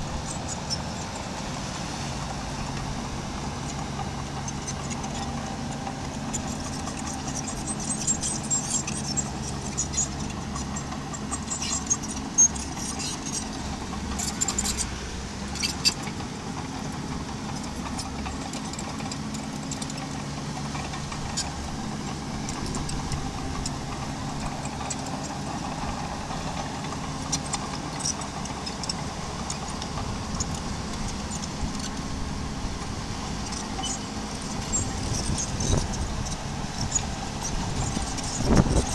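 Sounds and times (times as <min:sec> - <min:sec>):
bulldozer engine running: 0:00.0 - 0:38.9.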